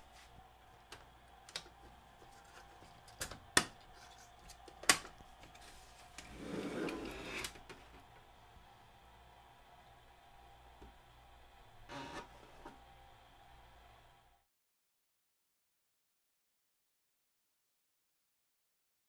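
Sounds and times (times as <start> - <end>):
device scraping on workbench: 6.2 - 7.6, 11.9 - 12.8.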